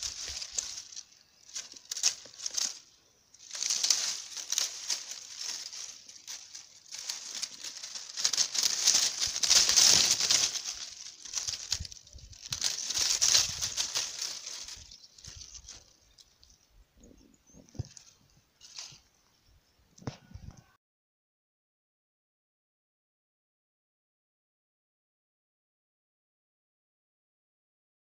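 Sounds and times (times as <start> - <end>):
dry leaves and twigs rustling: 0.0 - 19.4.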